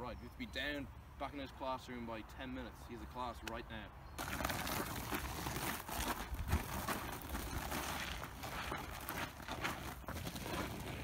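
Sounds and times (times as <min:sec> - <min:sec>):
footsteps on gravel path: 0:04.2 - 0:11.0.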